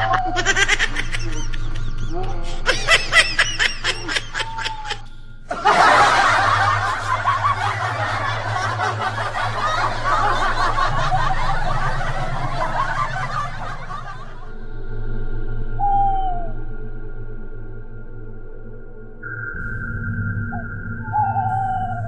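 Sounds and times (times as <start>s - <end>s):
crowd laughing: 0.0s - 14.6s
rhythmic laughing: 0.0s - 14.6s.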